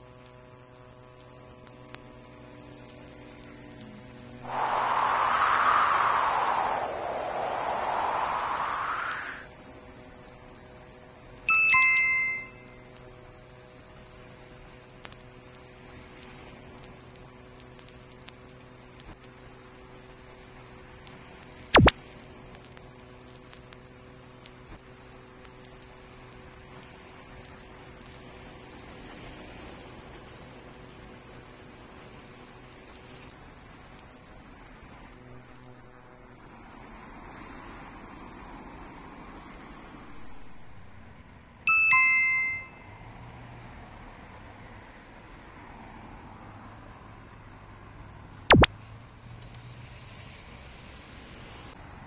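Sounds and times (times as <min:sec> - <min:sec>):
katydid high-pitched buzz: 0:04.4 - 0:09.6, 0:11.5 - 0:13.1, 0:21.8 - 0:22.0, 0:36.9 - 0:40.9
sharp click: 0:21.8 - 0:22.0.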